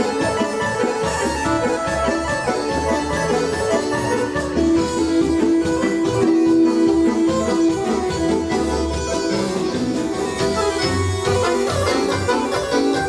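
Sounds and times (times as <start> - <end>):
live dance band music: 0.0 - 13.0.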